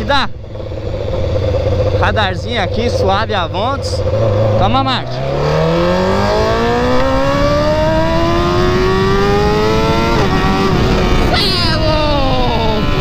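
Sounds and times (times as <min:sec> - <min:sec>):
motorcycle engine accelerating: 0:00.0 - 0:13.0
wind on microphone: 0:04.0 - 0:13.0.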